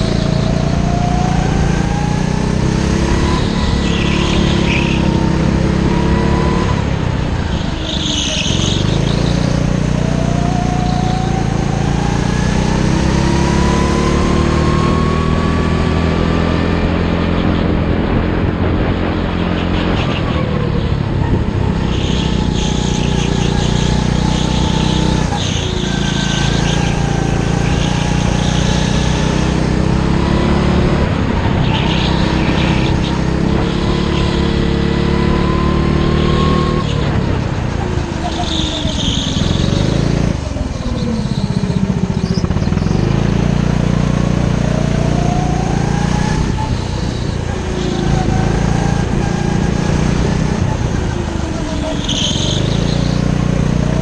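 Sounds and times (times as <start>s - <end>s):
go-kart engine accelerating: 0.0s - 54.0s.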